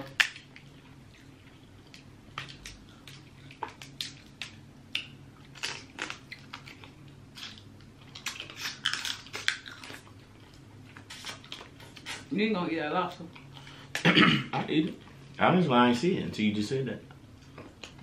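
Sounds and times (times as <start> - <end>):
seafood shells cracking: 1.9 - 10.1.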